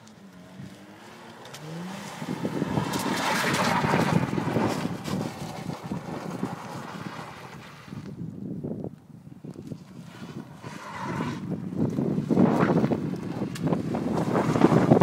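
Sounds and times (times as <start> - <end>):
car engine revving: 0.0 - 7.8
car sliding on ice: 0.0 - 8.2, 9.6 - 15.0.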